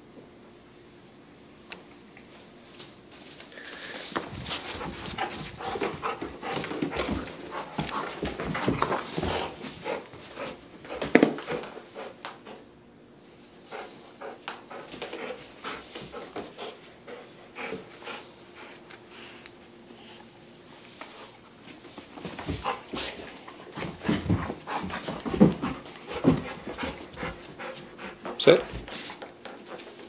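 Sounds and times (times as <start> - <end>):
dog panting: 4.2 - 12.7, 13.6 - 20.3, 22.2 - 30.0.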